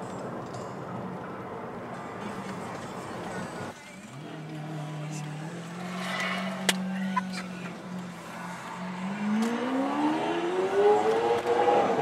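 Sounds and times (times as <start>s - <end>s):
car engine revving: 4.0s - 12.0s.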